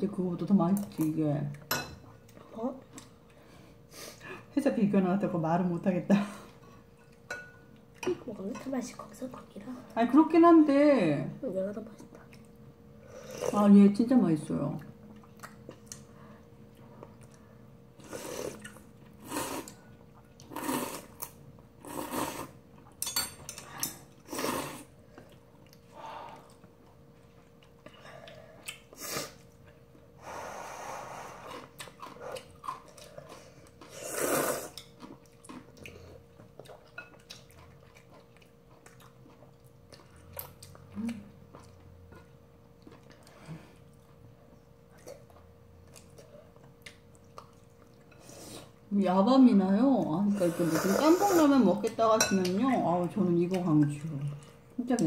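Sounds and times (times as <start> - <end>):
chewing: 15.0 - 17.6, 25.1 - 30.1, 31.3 - 48.8.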